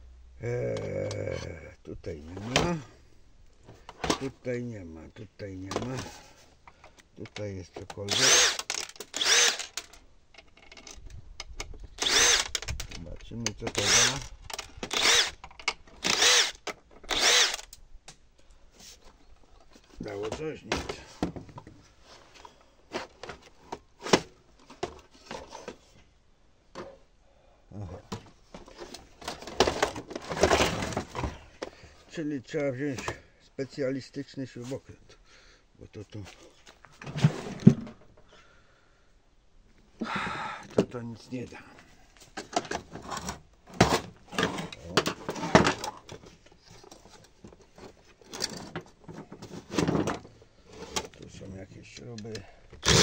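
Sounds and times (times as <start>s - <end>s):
plastic clicks and scraping: 6.7s - 17.8s
screwdriver clicking and knocking: 8.1s - 9.9s, 12.0s - 12.8s.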